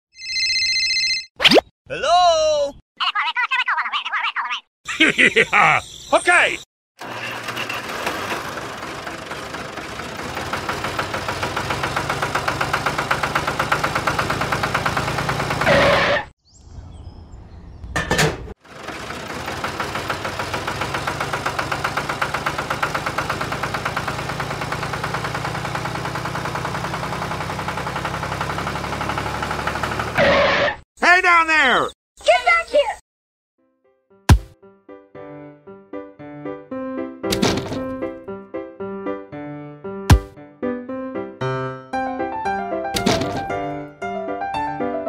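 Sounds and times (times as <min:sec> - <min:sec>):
tractor engine chugging: 0:07.0 - 0:16.2, 0:18.6 - 0:30.2.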